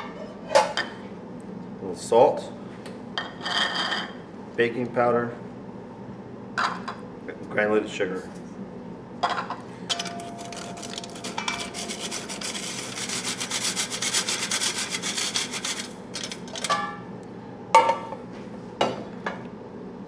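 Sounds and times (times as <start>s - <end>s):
flour sifter rasping scrape: 10.4s - 16.4s.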